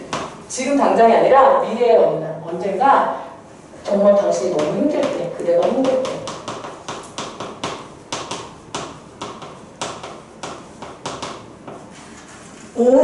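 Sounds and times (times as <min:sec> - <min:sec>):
chalk tapping on chalkboard: 0:00.0 - 0:00.4, 0:04.1 - 0:12.7.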